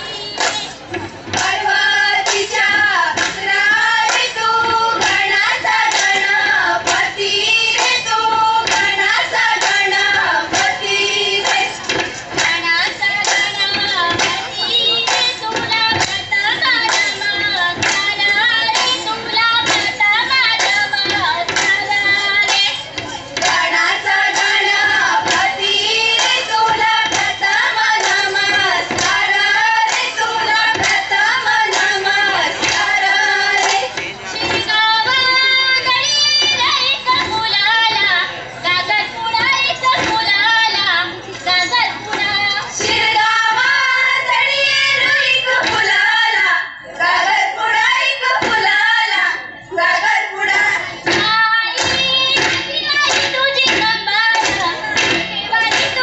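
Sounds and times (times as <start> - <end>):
regular beat: 0.0 - 40.8
women singing folk song: 0.0 - 56.0.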